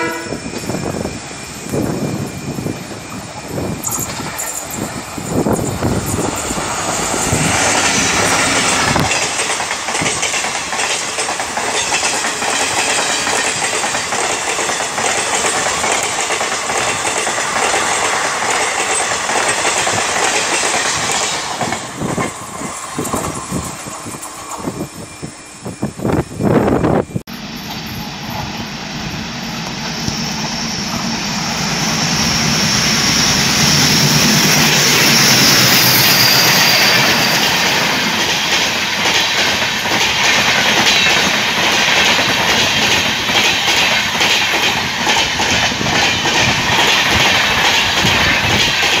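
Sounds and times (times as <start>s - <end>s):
train passing at speed: 0.0s - 49.0s
train wheels clattering over rail joints: 0.5s - 24.8s, 33.6s - 49.0s.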